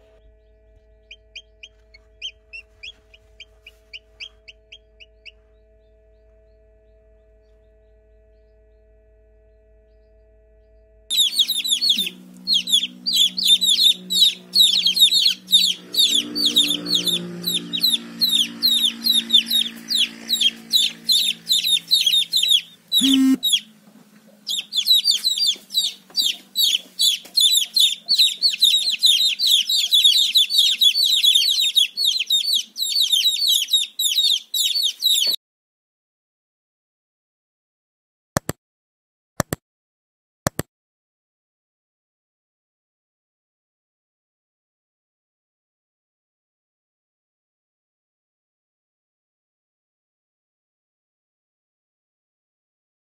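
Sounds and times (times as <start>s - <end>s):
chicks peeping: 1.0s - 5.4s, 11.1s - 35.4s.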